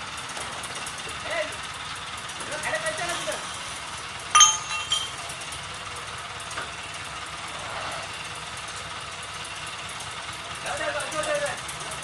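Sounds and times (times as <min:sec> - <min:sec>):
engine idling: 0:00.0 - 0:12.0
metal pipe clanking: 0:04.4 - 0:05.2.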